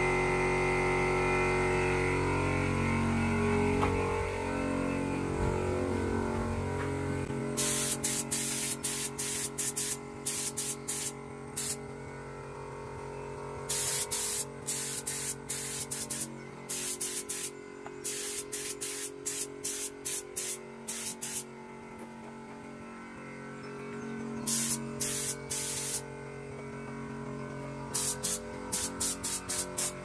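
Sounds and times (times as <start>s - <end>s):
paint spray gun hissing: 7.6s - 11.8s, 13.7s - 21.4s, 24.5s - 26.0s, 27.9s - 30.0s.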